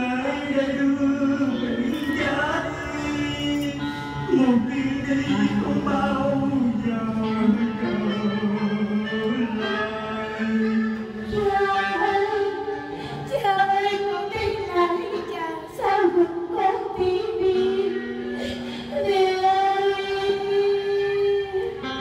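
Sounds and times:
musical accompaniment: 0.0 - 22.0
person singing opera style: 0.0 - 22.0.

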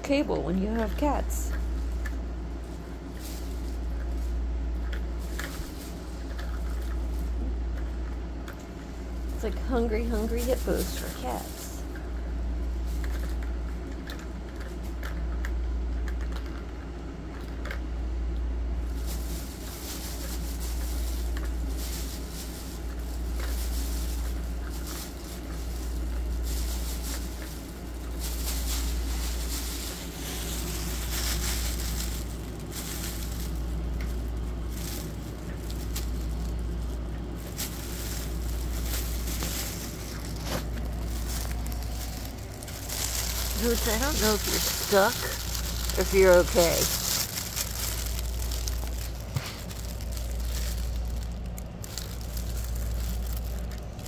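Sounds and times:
low rumble: 18.0 - 53.8.

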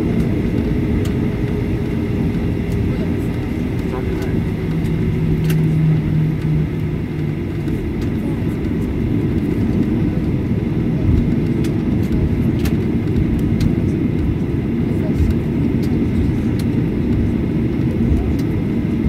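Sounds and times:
aircraft rolling on ground: 0.0 - 19.0
jet engines low rumble: 0.0 - 19.0.

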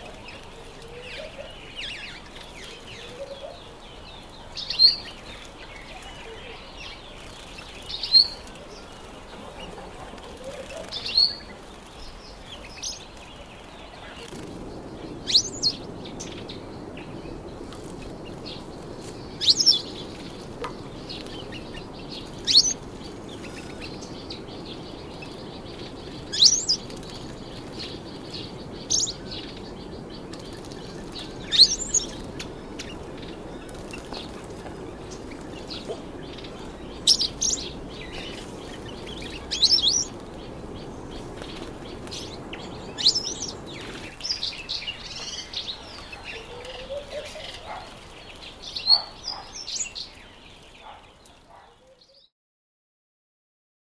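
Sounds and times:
wings fluttering: 5.1 - 16.4, 17.4 - 29.6, 30.2 - 49.1.

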